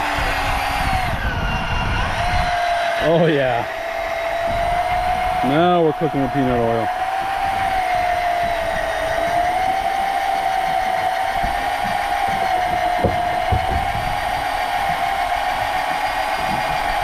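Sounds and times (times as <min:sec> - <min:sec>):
fishing reel motor whining: 0:00.0 - 0:17.0
low knocks: 0:10.5 - 0:15.7.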